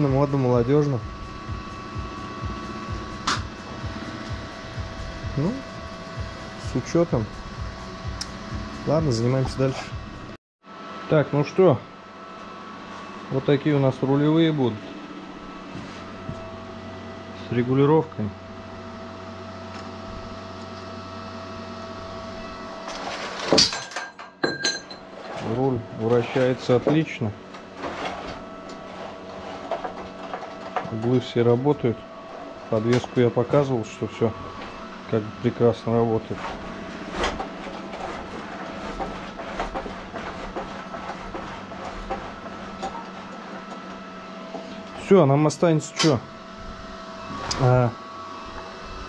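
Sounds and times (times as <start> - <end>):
machine hum: 0.0 - 49.0
scraping clatter: 22.8 - 31.1, 36.2 - 43.8.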